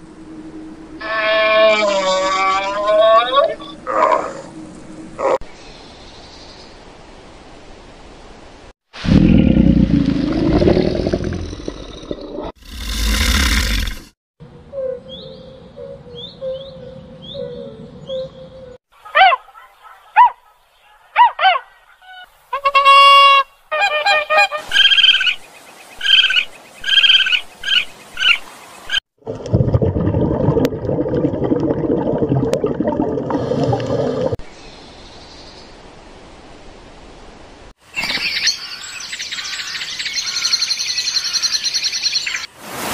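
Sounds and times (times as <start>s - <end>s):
rising and falling animal calls: 1.0s - 4.5s.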